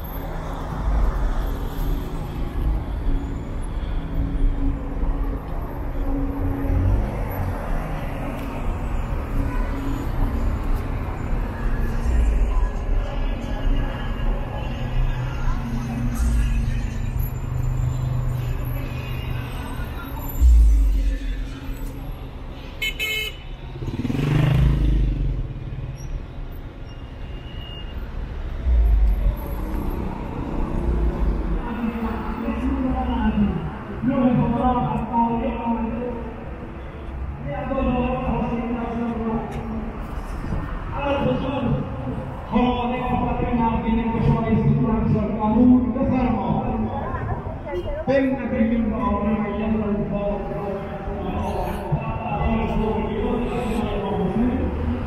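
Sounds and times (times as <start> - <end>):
traffic rumble: 0.0 - 55.0
motor vehicle passing: 23.8 - 25.5.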